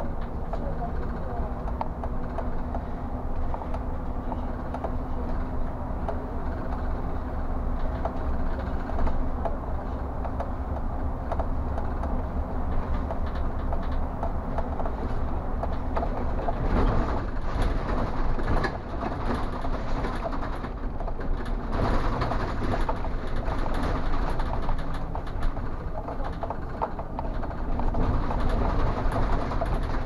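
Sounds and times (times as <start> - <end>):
bus engine drone: 0.0 - 30.0
road noise: 0.0 - 30.0
clicks and rattles: 11.3 - 30.0.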